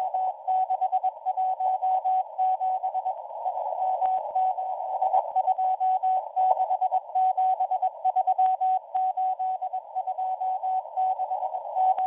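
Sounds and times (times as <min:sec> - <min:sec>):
crackle of radio static: 0:00.0 - 0:12.0
receiver hiss: 0:00.0 - 0:12.0.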